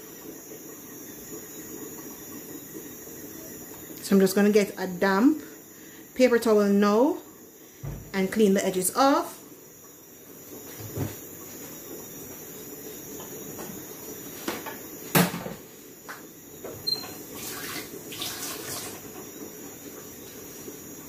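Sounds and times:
kitchen knocks and clatters: 10.7s - 11.2s, 14.4s - 17.2s.

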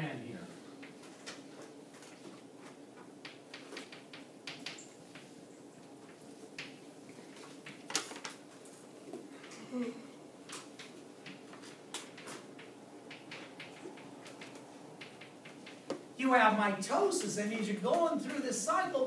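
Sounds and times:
faint room hum: 0.0s - 19.0s.

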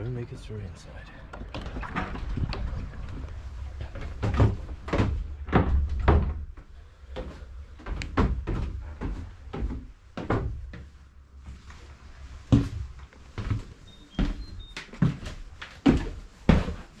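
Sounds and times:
irregular knocks and thumps: 1.3s - 11.0s.

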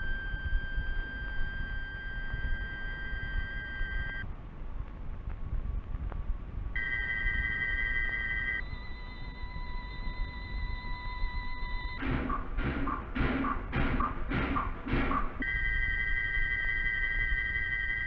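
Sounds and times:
high held electronic tone: 0.0s - 4.2s, 6.8s - 13.0s, 15.4s - 18.0s
low rumble: 0.0s - 17.5s.

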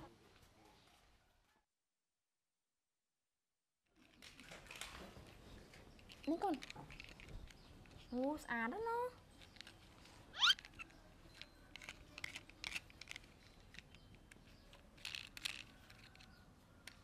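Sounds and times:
plastic toy clicking and rustling: 4.0s - 17.0s
rising squeak: 10.4s - 10.7s.

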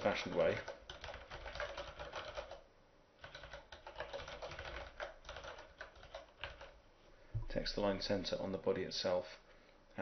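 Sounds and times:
computer keyboard typing: 0.0s - 6.8s.

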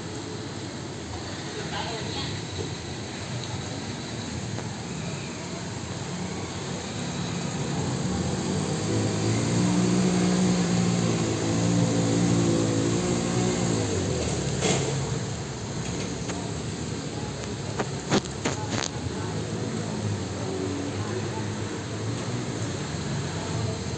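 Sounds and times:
vehicle engine running: 5.9s - 20.3s.

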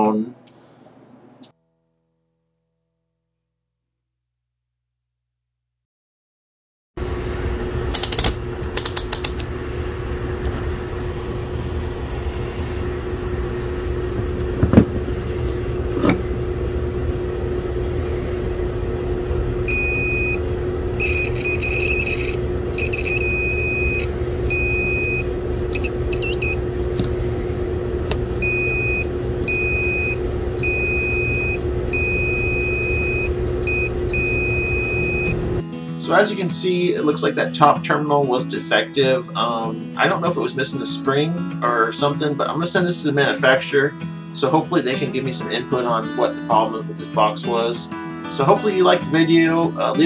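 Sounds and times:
machine hum: 7.0s - 35.6s
high electronic beeps: 21.0s - 26.6s.

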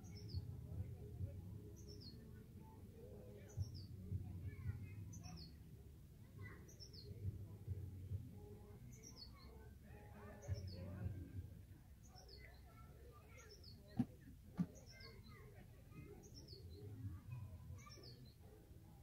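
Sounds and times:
soft thumps: 13.9s - 14.9s.

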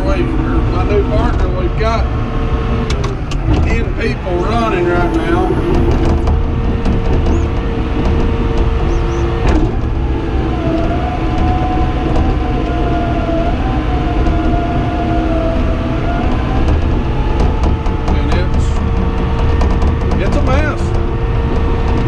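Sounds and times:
high whine: 0.0s - 19.7s
bulldozer diesel engine under load: 0.0s - 22.0s
bulldozer blade pushing dirt: 16.4s - 22.0s.

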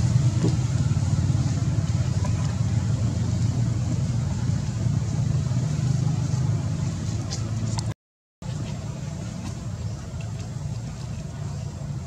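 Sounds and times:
low engine hum: 0.0s - 12.0s.

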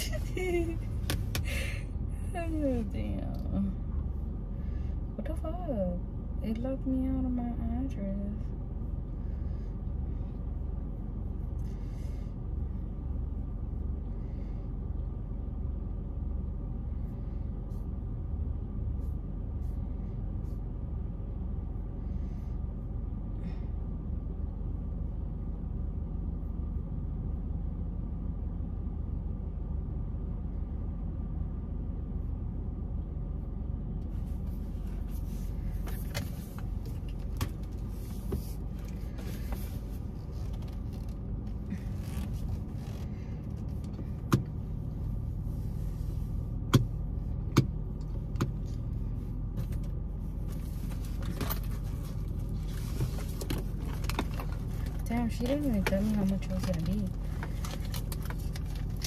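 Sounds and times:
car engine idling: 0.0s - 59.0s
clicks and rustles: 49.6s - 59.0s.

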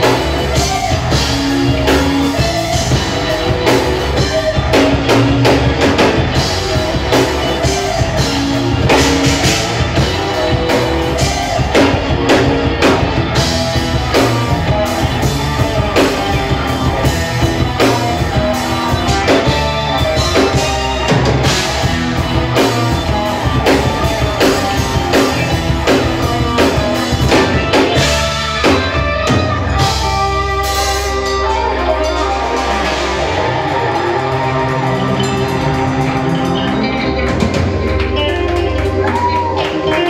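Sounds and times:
drum kit: 0.0s - 40.0s
electric guitar: 0.0s - 40.0s
keyboards: 0.0s - 40.0s.

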